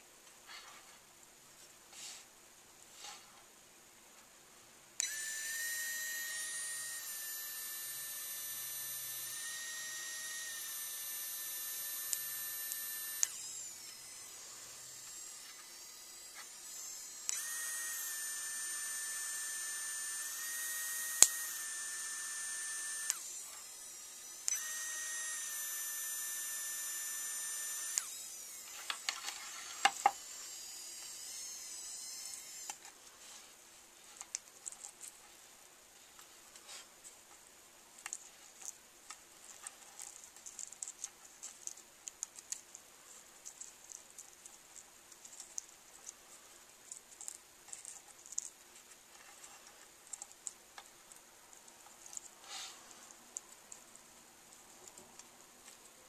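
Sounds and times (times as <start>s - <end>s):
faint whir: 0.0s - 56.0s
small motor whining: 5.0s - 33.0s.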